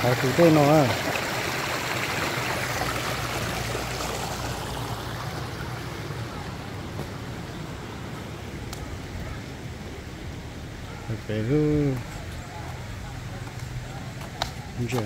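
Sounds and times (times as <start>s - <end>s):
water rushing over weir: 0.0s - 10.7s.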